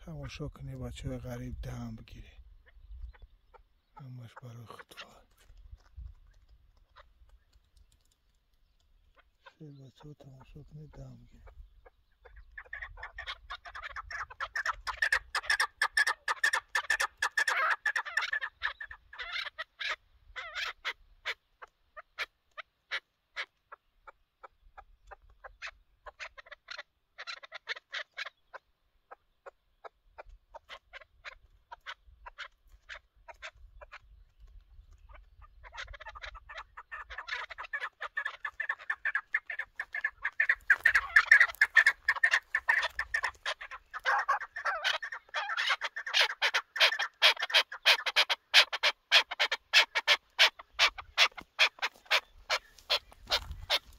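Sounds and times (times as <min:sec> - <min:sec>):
partridges clucking: 0:30.2 - 0:53.9.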